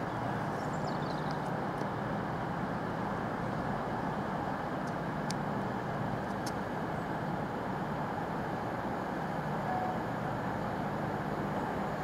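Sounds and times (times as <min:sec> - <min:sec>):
low hum: 0:09.6 - 0:12.0.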